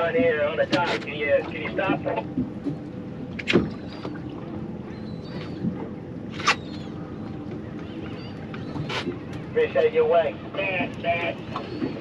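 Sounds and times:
outboard engine hum: 0:00.0 - 0:12.0
water noise: 0:00.0 - 0:12.0.

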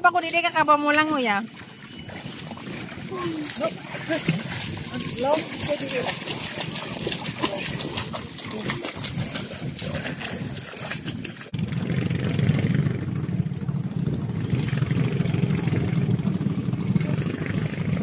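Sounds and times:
sea water splashing: 0:00.0 - 0:11.6
low engine-like drone: 0:01.5 - 0:18.0.

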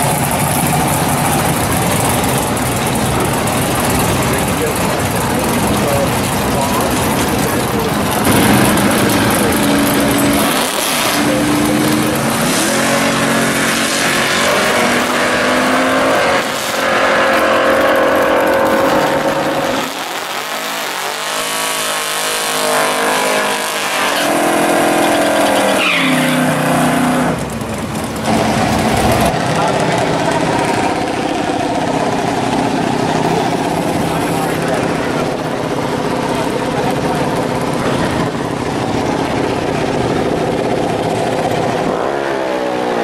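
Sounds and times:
race car engines revving: 0:00.0 - 0:43.0
tyre squeal: 0:23.9 - 0:27.0.

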